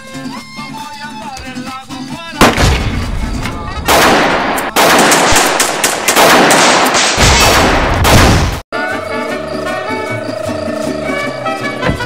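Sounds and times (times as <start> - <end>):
music: 0.0 - 3.9, 8.7 - 12.0
rapid pistol gunfire: 3.9 - 8.6.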